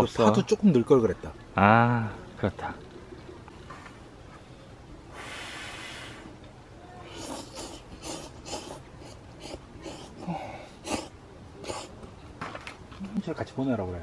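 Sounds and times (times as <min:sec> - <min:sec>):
person slurping noodles: 0:07.1 - 0:12.0.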